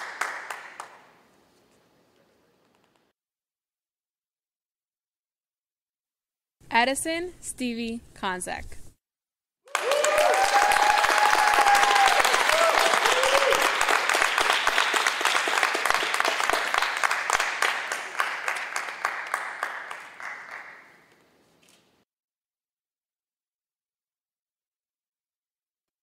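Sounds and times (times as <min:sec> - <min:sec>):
people cheering: 0:00.0 - 0:00.6, 0:09.7 - 0:20.8
audience clapping: 0:00.0 - 0:01.3, 0:09.7 - 0:21.2.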